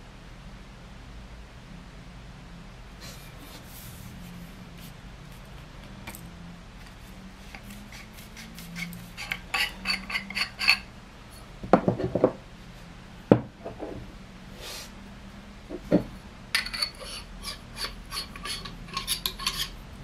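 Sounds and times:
metal tubes clinking: 9.2 - 10.9.

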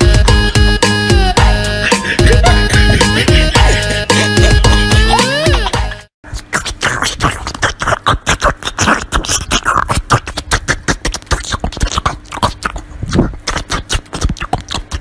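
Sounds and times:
puppy chewing watermelon: 6.3 - 15.0.

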